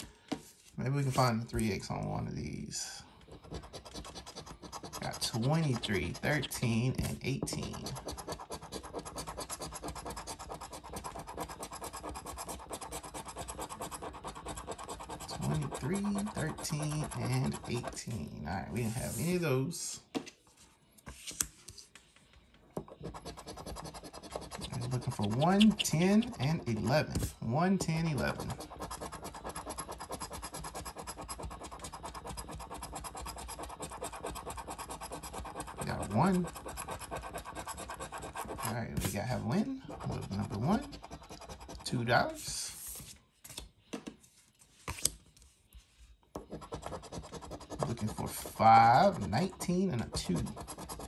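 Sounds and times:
coin scratching lottery ticket: 0:03.3 - 0:18.2, 0:22.9 - 0:27.3, 0:27.9 - 0:42.0, 0:46.5 - 0:51.0.

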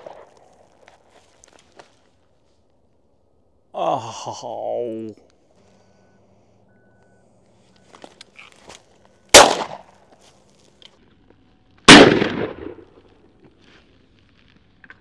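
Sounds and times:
shotgun shots with echo: 0:09.3 - 0:09.8, 0:11.9 - 0:13.0.

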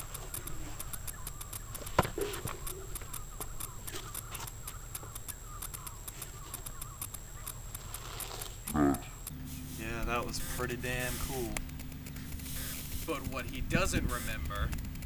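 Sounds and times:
faint bird chirps: 0:00.0 - 0:10.6, 0:12.1 - 0:13.0
small clicks: 0:00.0 - 0:15.0.

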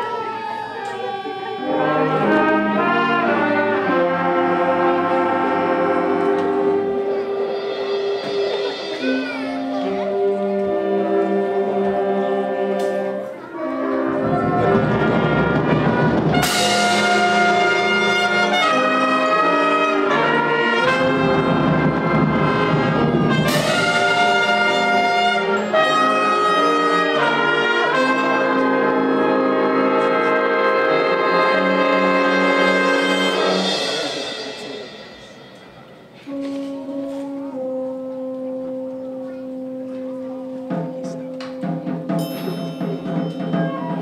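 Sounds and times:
concert band playing: 0:00.0 - 0:44.0
percussion roll into cymbal crash: 0:33.2 - 0:36.3.

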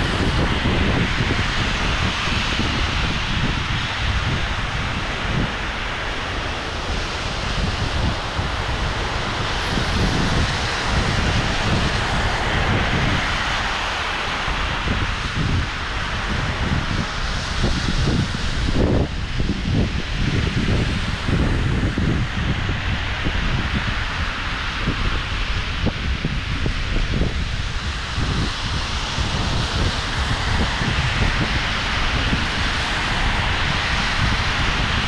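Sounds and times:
cars passing on wet road: 0:00.0 - 0:19.0, 0:27.8 - 0:35.0
rain hissing: 0:00.0 - 0:25.9, 0:27.2 - 0:35.0
wind buffeting microphone: 0:00.0 - 0:35.0.

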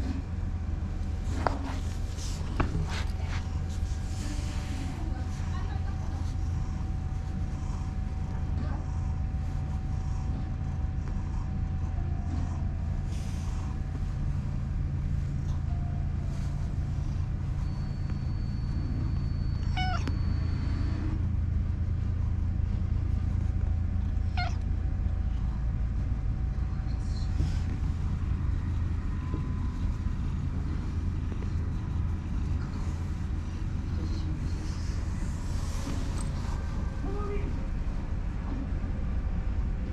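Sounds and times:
cat purring: 0:00.0 - 0:38.8
cat meowing: 0:19.5 - 0:20.3, 0:24.3 - 0:24.6.

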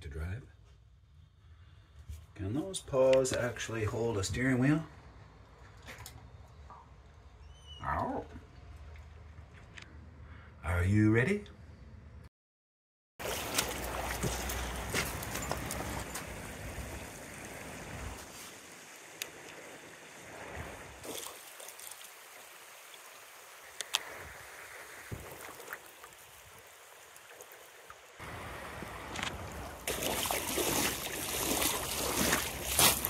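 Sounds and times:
footsteps crunching on wet gravel: 0:13.2 - 0:16.4, 0:29.0 - 0:33.0
river water running over gravel: 0:13.2 - 0:33.0
pebbles clicking underfoot: 0:31.4 - 0:33.0.

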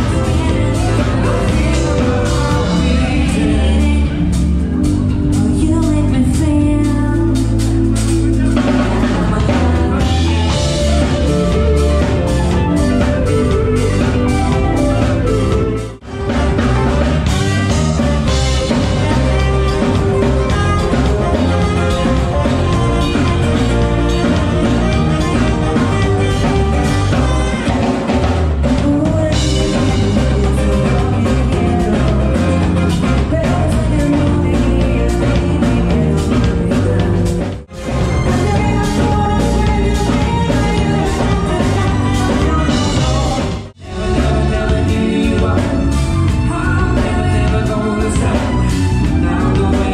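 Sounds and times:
woman singing into a microphone: 0:00.0 - 0:04.5, 0:05.3 - 0:12.1, 0:18.7 - 0:25.0, 0:27.2 - 0:37.4, 0:38.1 - 0:49.9
live pop-rock band: 0:00.0 - 0:49.9.

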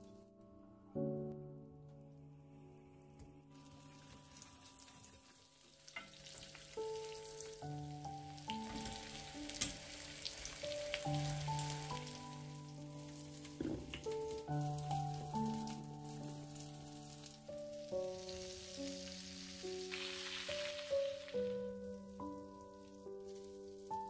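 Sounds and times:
gentle background music: 0:00.0 - 0:24.0
meat sizzling in a grill pan: 0:03.7 - 0:24.0.

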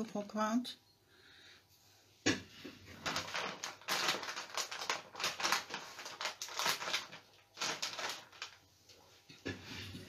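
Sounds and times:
crinkling: 0:02.3 - 0:10.0.

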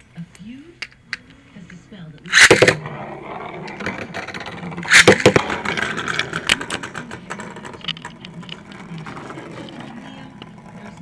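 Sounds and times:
ripcord rasping rip: 0:02.3 - 0:02.8, 0:04.9 - 0:05.4
spinning top whirring and rattling: 0:02.3 - 0:11.0.

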